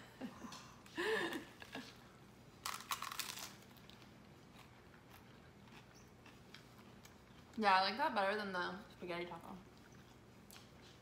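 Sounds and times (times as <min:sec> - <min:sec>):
crunching bite into taco shell: 0:02.6 - 0:07.5.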